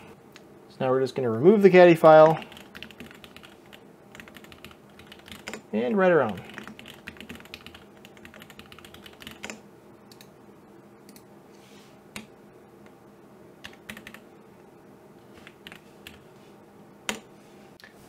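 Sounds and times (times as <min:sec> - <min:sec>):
faint keyboard typing: 0:02.1 - 0:10.3, 0:11.1 - 0:11.3, 0:13.6 - 0:14.3, 0:15.3 - 0:16.3.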